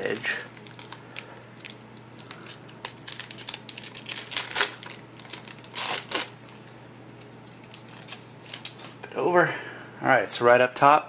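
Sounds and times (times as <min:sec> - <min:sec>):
foil wrapper crinkling: 0:00.0 - 0:06.7, 0:07.4 - 0:09.0.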